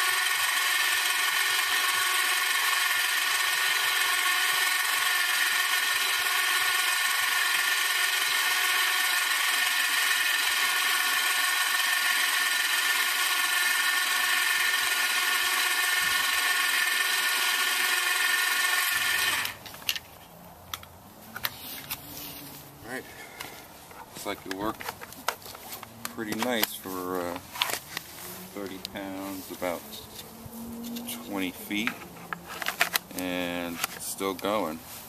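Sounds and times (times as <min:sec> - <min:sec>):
electric winch motor whining: 0:00.0 - 0:19.6.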